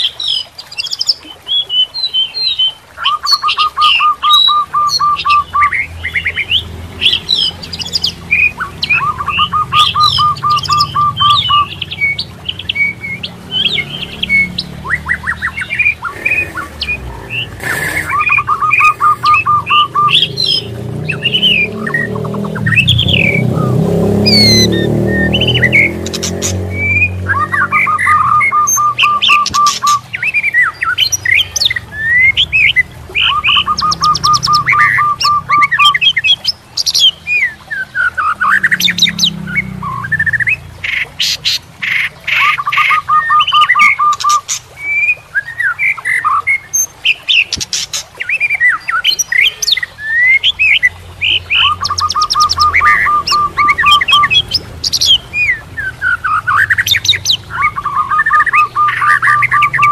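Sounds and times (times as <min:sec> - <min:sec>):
songbird singing: 0:00.0 - 0:59.9.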